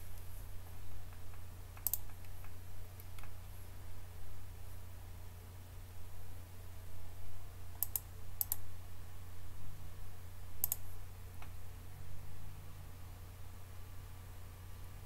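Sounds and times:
steady low hum: 0.0s - 15.0s
computer mouse clicking: 1.1s - 3.4s, 7.8s - 8.6s, 10.6s - 11.6s.

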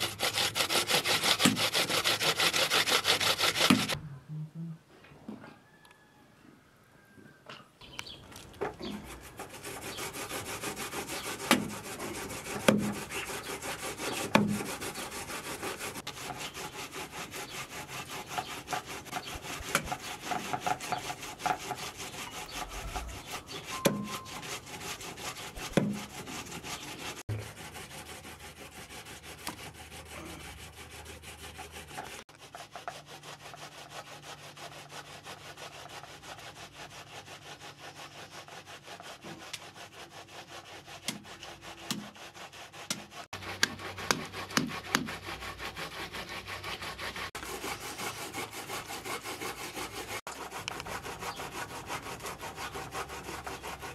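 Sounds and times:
hand grater rasping: 0.0s - 4.0s, 9.2s - 37.4s, 40.9s - 53.9s
cleaver knocking on block: 43.6s - 45.1s.

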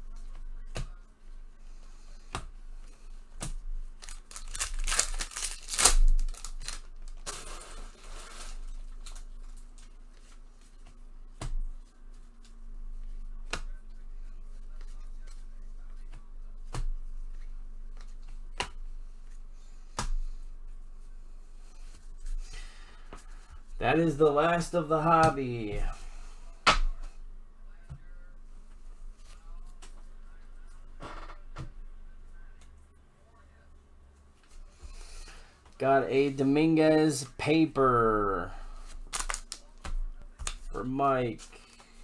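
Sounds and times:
faint steady hum: 0.0s - 42.0s
wrapper tearing and crinkling: 4.0s - 9.0s, 39.0s - 39.6s.

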